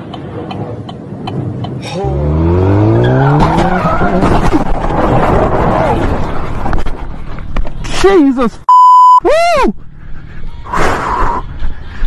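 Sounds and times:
car engine revving: 0:02.0 - 0:06.4
tires squealing and skidding: 0:02.0 - 0:06.5.

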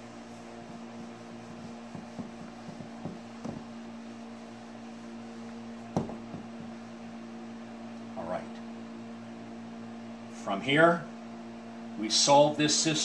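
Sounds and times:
steady background hum: 0:00.0 - 0:13.0
eraser rubbing on whiteboard: 0:00.2 - 0:06.7
sharp knock: 0:06.0 - 0:06.8.

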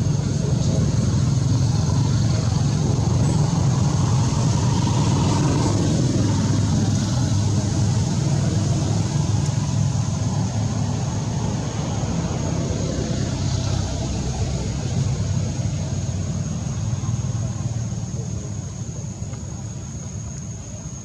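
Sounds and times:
low rumbling background noise: 0:00.0 - 0:21.0.

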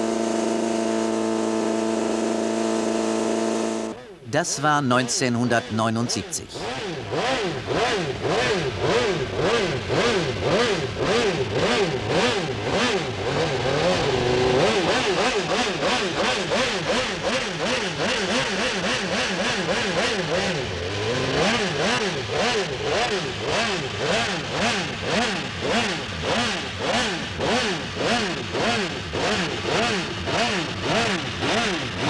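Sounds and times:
motorcycle engine revving: 0:06.6 - 0:32.0.

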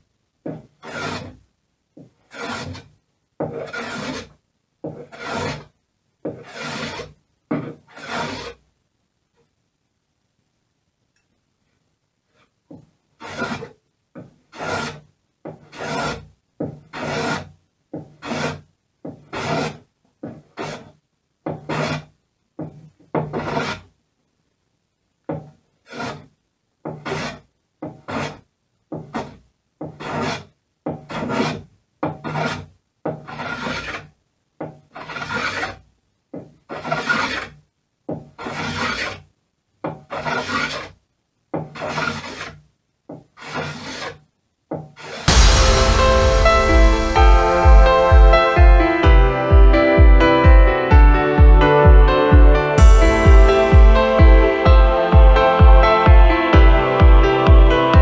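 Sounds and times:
hand plane rasping on wood: 0:00.5 - 0:01.3, 0:02.3 - 0:05.7, 0:06.3 - 0:08.5, 0:13.2 - 0:13.7, 0:14.5 - 0:15.0, 0:15.6 - 0:18.6, 0:19.3 - 0:20.9, 0:21.5 - 0:22.1, 0:23.3 - 0:23.8, 0:25.8 - 0:26.2, 0:26.9 - 0:28.4, 0:29.0 - 0:34.0, 0:34.9 - 0:35.8, 0:36.7 - 0:37.5, 0:38.4 - 0:39.2, 0:40.0 - 0:40.9, 0:41.6 - 0:42.6, 0:43.4 - 0:44.2.

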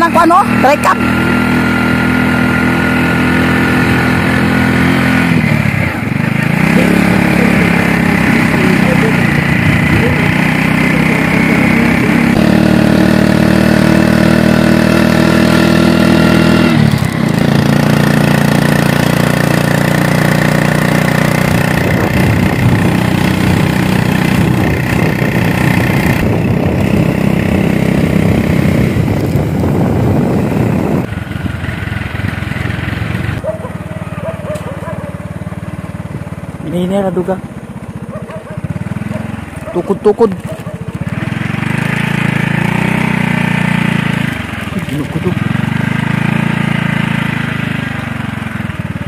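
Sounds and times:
motorcycle engine running: 0:00.0 - 0:49.0.

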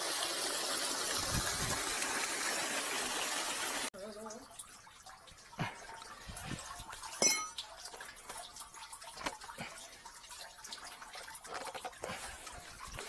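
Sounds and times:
water dripping and trickling: 0:00.0 - 0:13.0
metallic clink: 0:07.2 - 0:07.6.

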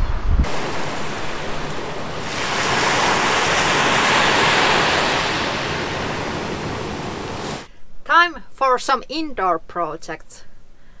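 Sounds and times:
small waves breaking on sand: 0:00.5 - 0:07.7.

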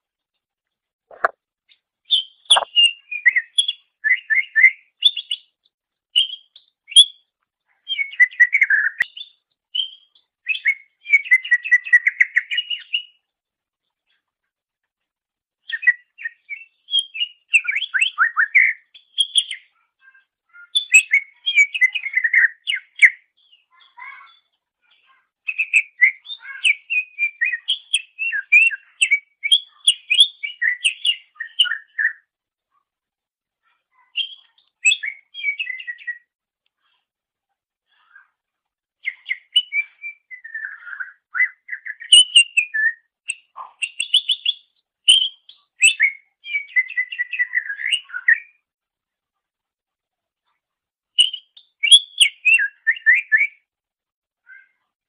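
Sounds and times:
bird chirping and trilling: 0:02.1 - 0:05.5, 0:25.5 - 0:32.2, 0:33.9 - 0:36.3, 0:39.0 - 0:48.6, 0:51.2 - 0:53.6.

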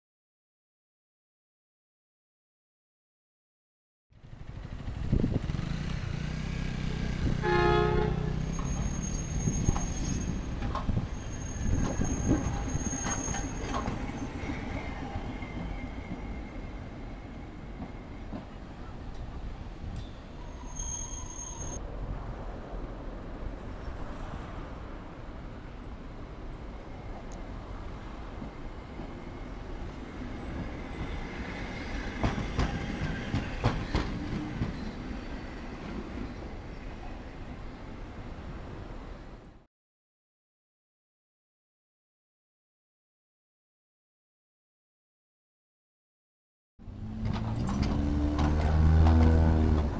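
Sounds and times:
streetcar rumbling past: 0:04.2 - 0:39.4, 0:46.8 - 0:49.9
tram wheels squealing: 0:08.3 - 0:21.8, 0:28.5 - 0:37.4
tram wheels clacking over rail joints: 0:08.4 - 0:16.5, 0:29.9 - 0:36.4, 0:47.0 - 0:49.9
wheels clacking over rails: 0:30.5 - 0:35.0, 0:47.2 - 0:49.9.

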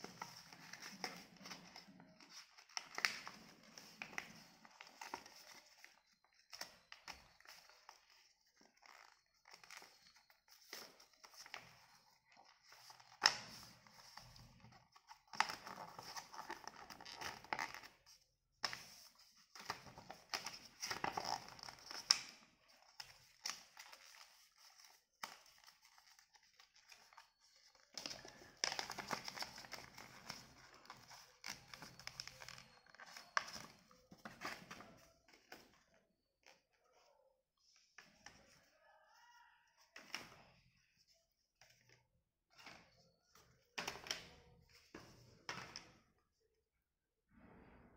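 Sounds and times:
paper rustling and crinkling: 0:00.0 - 0:37.1.

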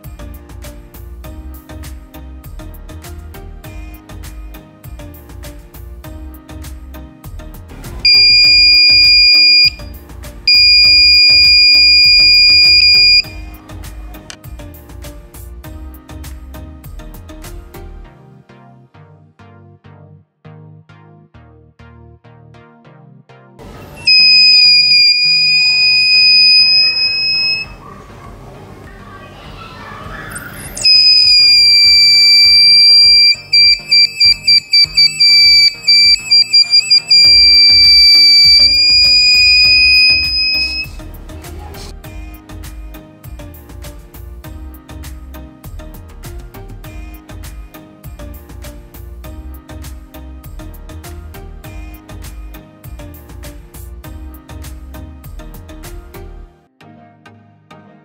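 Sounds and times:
background music with beat: 0:00.0 - 0:19.5, 0:30.8 - 0:57.0
electronic buzzer beeping: 0:08.1 - 0:09.9, 0:10.5 - 0:13.4, 0:24.0 - 0:27.8, 0:30.8 - 0:40.9.

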